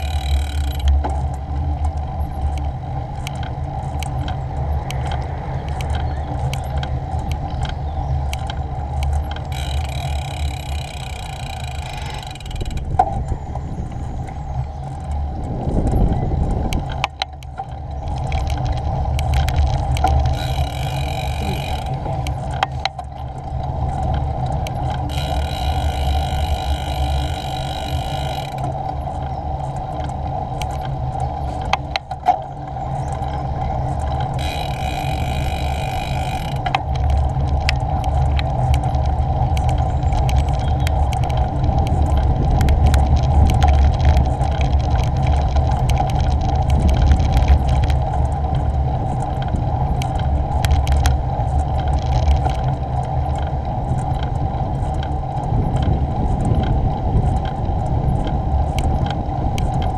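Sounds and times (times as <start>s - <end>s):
clicks: 0.0s - 13.4s
bicycle tyre and road rumble: 0.0s - 59.9s
wind noise: 0.0s - 59.9s
high buzzing: 9.5s - 12.9s, 20.3s - 22.3s, 25.0s - 28.7s, 34.4s - 36.7s.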